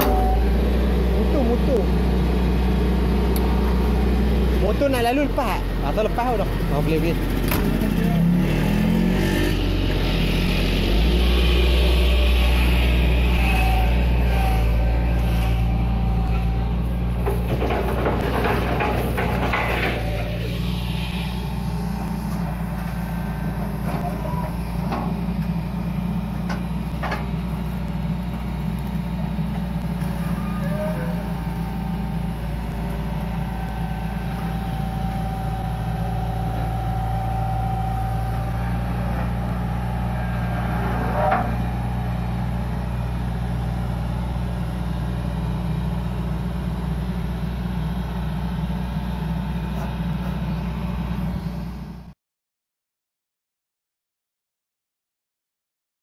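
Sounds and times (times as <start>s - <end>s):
excavator diesel engine running: 0.0s - 52.2s
metal clanks: 17.1s - 20.6s
high-pitched whine: 30.2s - 43.0s.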